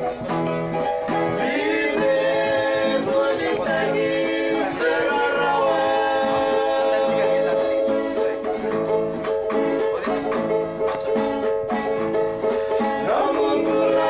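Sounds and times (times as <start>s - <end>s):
acoustic guitar: 0.0s - 14.0s
men singing in harmony: 1.3s - 8.8s, 12.8s - 14.0s.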